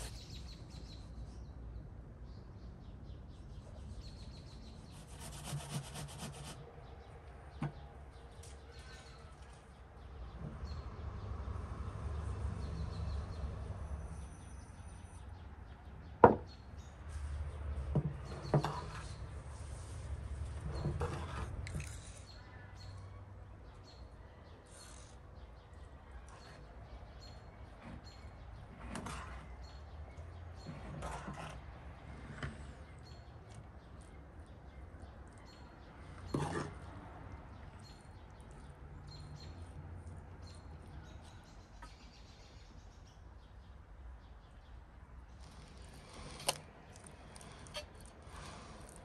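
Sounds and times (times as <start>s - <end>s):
spoons scraping wooden bowl: 3.7s - 6.7s, 18.2s - 22.4s, 27.7s - 29.7s, 30.6s - 32.8s, 36.0s - 37.0s, 45.3s - 49.0s.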